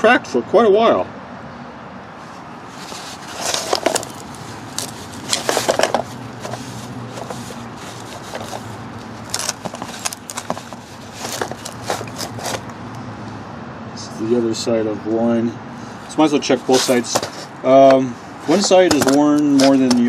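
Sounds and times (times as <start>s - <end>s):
rag wiping metal parts: 2.3s - 12.8s, 16.2s - 20.0s
parts shifted on cardboard: 2.7s - 12.8s, 16.6s - 20.0s.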